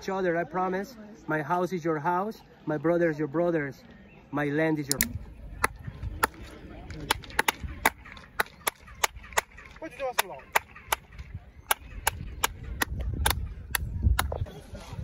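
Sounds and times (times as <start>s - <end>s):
sharp hand claps: 7.0s - 14.3s.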